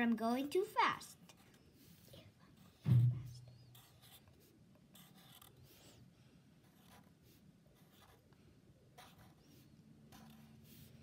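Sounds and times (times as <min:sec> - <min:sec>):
marker scratching on paper: 0:01.3 - 0:11.0.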